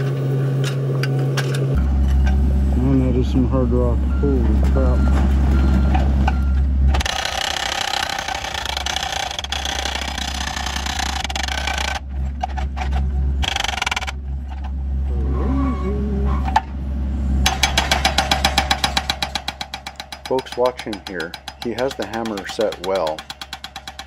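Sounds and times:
excavator engine running: 0.0s - 24.0s
hydraulic hammer pounding rock: 6.9s - 12.8s, 13.4s - 14.2s, 17.4s - 24.0s.

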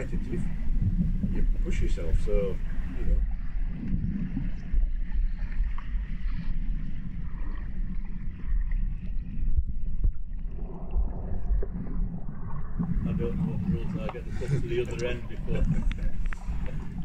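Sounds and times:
muffled underwater rumble: 0.0s - 17.0s.

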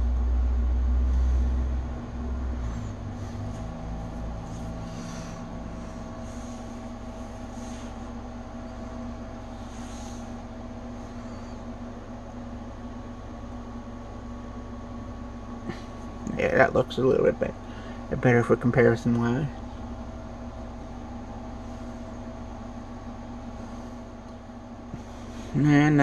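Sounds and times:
deep rumble: 0.0s - 11.3s
mechanical room hum: 0.0s - 26.0s.

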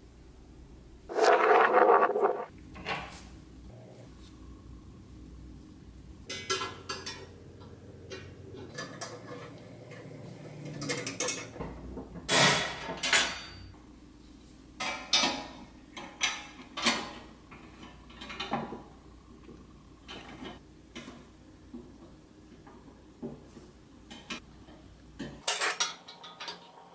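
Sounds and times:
steel wire clinking on metal: 6.3s - 11.6s, 25.4s - 26.9s.

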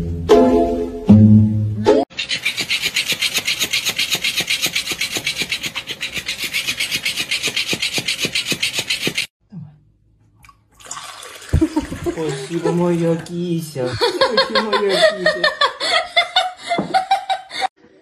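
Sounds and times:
toy rubbing on bedsheet: 2.1s - 9.3s.

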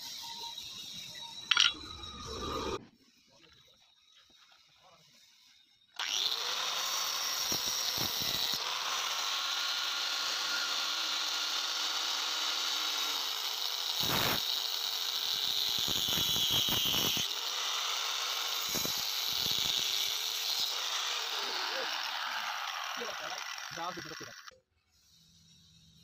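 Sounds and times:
power tool grinding steel: 6.0s - 26.0s.

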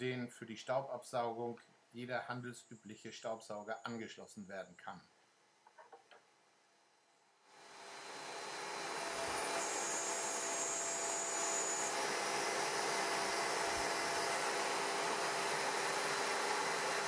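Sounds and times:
vacuum cleaner rushing noise: 7.5s - 17.0s.

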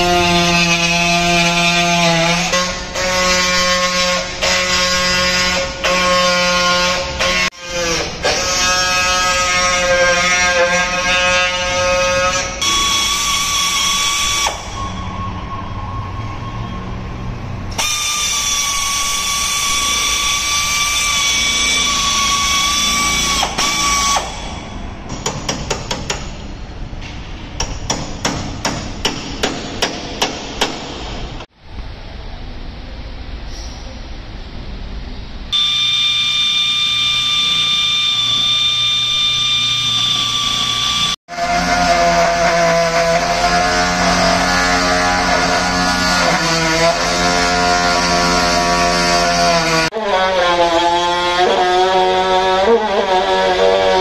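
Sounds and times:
pneumatic tool cutting steel: 0.0s - 15.0s, 17.7s - 24.9s, 35.6s - 54.0s.

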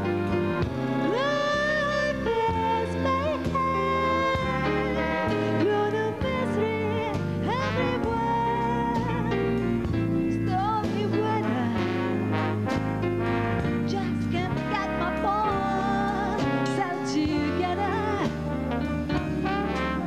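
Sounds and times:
big band horn chords: 0.0s - 20.0s
walking bass line: 0.0s - 20.0s
woman singing jazz ballad: 0.0s - 20.0s.

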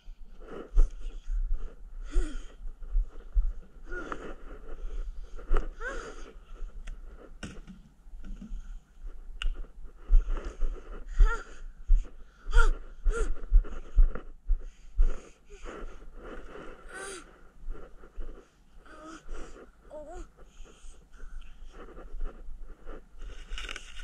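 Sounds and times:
child breathing close: 0.0s - 7.1s, 10.0s - 23.4s
child vocal noises: 3.8s - 4.4s, 5.7s - 6.3s, 11.0s - 11.7s, 12.4s - 13.4s, 16.8s - 17.3s, 18.8s - 20.4s.

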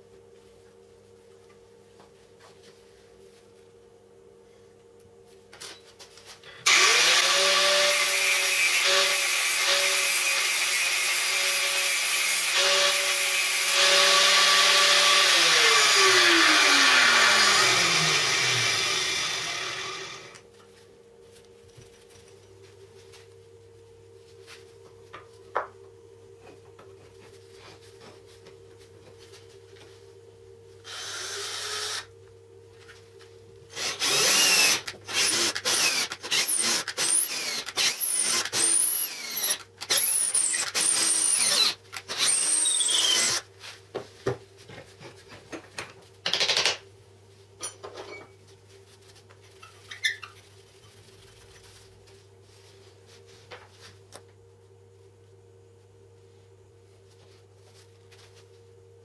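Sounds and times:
cordless drill boring into wood: 6.7s - 20.4s, 30.9s - 32.1s, 33.7s - 43.4s.

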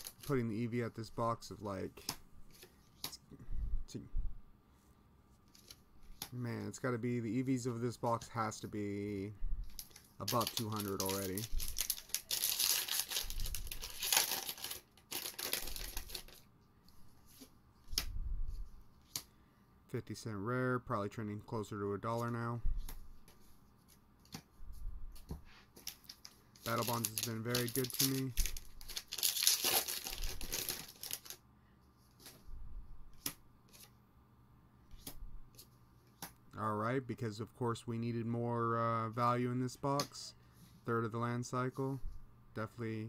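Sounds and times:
foil wrapper crinkling and tearing: 9.7s - 16.4s, 25.8s - 31.4s
playing cards handled: 9.8s - 16.4s, 25.1s - 31.4s.

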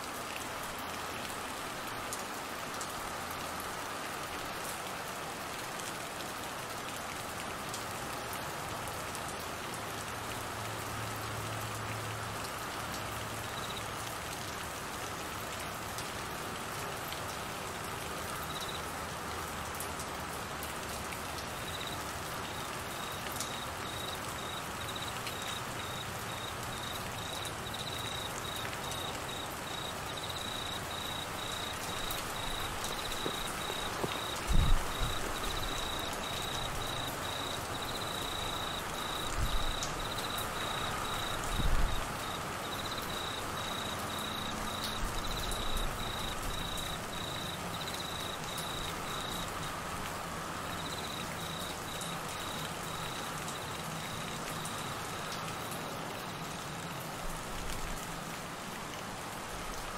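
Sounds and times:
rain falling on trees and grass: 0.0s - 59.9s
cricket chirping trill: 13.4s - 13.8s, 18.5s - 18.8s, 21.6s - 49.8s, 50.7s - 55.8s.

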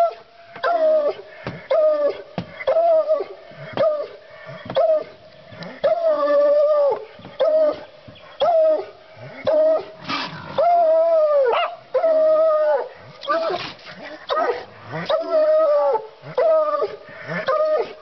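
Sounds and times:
hound baying: 11.5s - 11.8s.

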